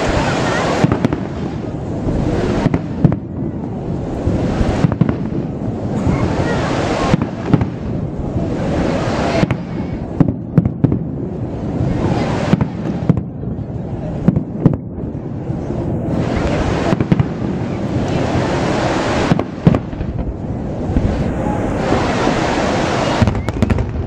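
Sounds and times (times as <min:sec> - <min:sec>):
continuous rushing noise: 0:00.0 - 0:24.0
firework shells bursting: 0:16.1 - 0:24.0.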